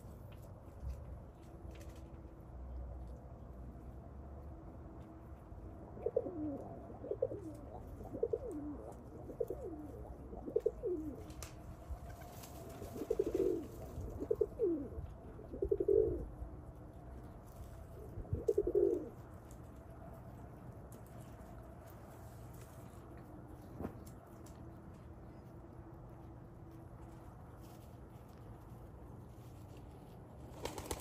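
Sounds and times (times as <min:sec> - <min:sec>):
pigeons cooing: 0:05.9 - 0:16.4, 0:17.8 - 0:19.3.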